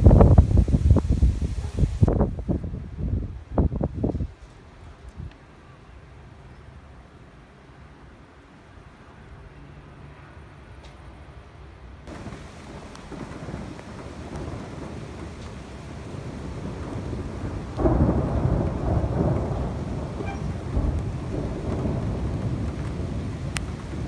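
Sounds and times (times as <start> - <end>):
thunder crack and rumble: 0.0 - 4.4, 12.1 - 24.0
steady rain: 0.0 - 6.0, 12.1 - 24.0.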